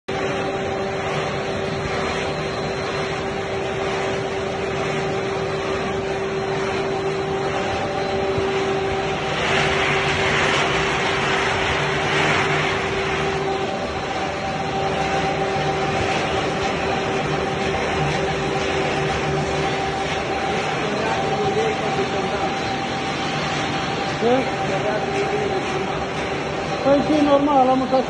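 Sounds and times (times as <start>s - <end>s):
machinery hum with whine: 0.0s - 28.0s.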